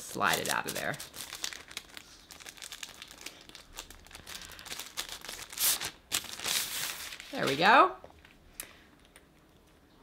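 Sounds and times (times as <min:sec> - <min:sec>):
tissue paper crinkling: 0:00.0 - 0:07.8.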